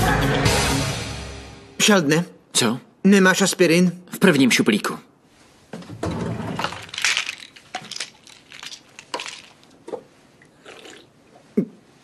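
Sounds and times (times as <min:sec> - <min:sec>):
drawer pulled open: 0:05.8 - 0:06.9
rummaging in drawer: 0:05.8 - 0:09.5.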